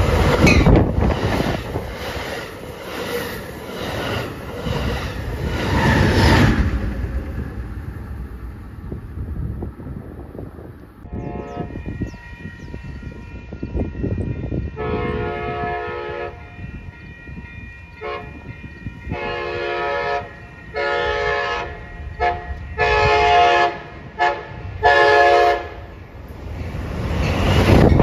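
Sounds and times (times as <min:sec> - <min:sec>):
low train rumble: 0:00.0 - 0:28.0
train air horn blasts: 0:11.0 - 0:16.9, 0:17.9 - 0:25.9.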